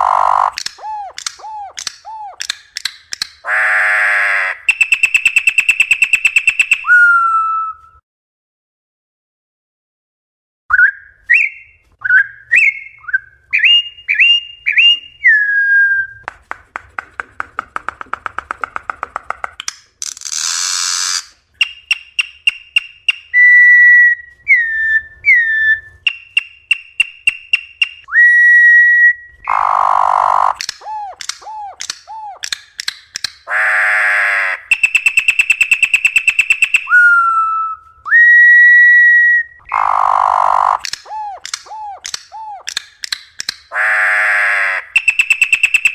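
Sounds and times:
bird singing varied song: 0.0s - 3.6s, 4.6s - 7.8s, 10.7s - 16.2s, 29.4s - 33.6s, 34.6s - 38.3s, 44.8s - 45.9s
harsh raspy bird calls: 0.0s - 7.2s, 29.4s - 32.5s, 33.4s - 37.4s, 39.6s - 42.8s, 43.6s - 45.9s.

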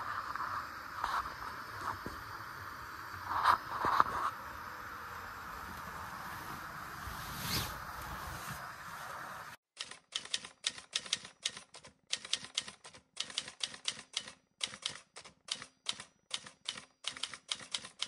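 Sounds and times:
typewriter keys clacking: 9.8s - 18.0s.

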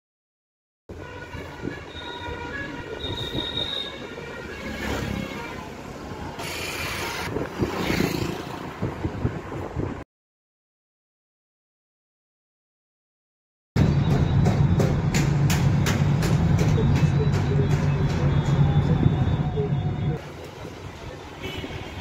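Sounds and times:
wind noise: 6.8s - 10.0s.

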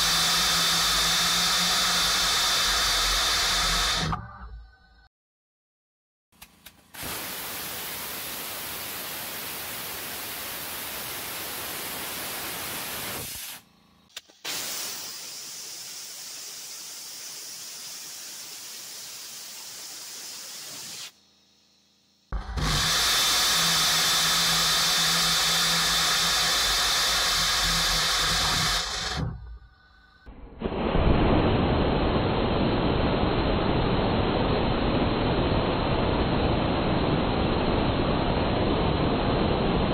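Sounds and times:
rocket engine exhaust hiss: 0.0s - 4.2s, 7.0s - 13.6s, 14.2s - 21.7s, 22.3s - 30.9s.

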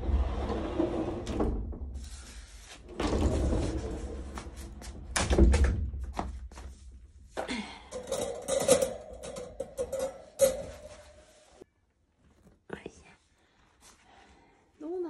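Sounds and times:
wire cage bars clicking: 8.0s - 10.6s.

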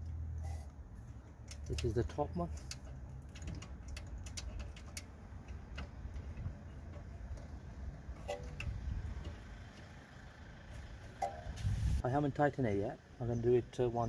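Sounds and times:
low steady rumble: 0.0s - 13.7s
light metallic clicks and taps: 1.2s - 7.6s.

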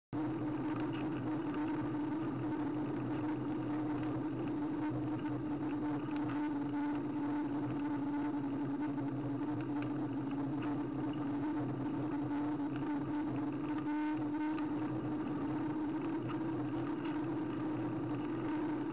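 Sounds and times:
bicycle rolling on asphalt: 15.1s - 18.9s.

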